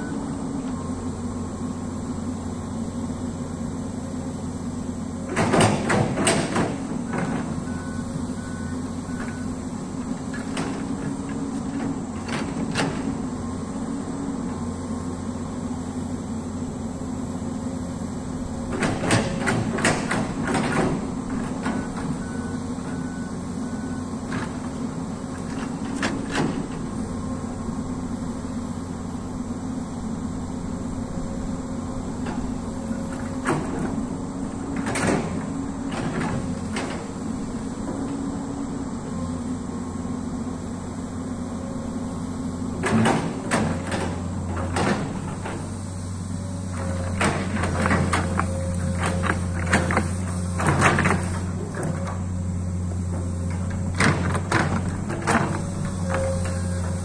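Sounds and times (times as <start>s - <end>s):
excavator diesel engine running: 0.0s - 57.0s
excavator arm clanking knocks: 5.2s - 8.3s, 9.0s - 13.3s, 18.6s - 23.6s, 24.2s - 27.2s, 32.0s - 39.3s, 42.7s - 57.0s.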